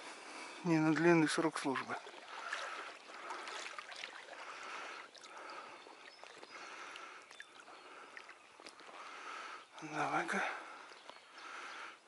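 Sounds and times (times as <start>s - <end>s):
river water sloshing around legs: 0.7s - 11.6s.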